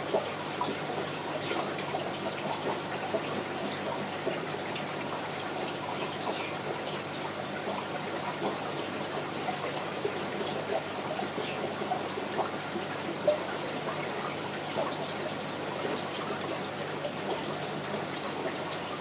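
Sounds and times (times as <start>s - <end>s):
aquarium water trickling and bubbling: 0.0s - 19.0s.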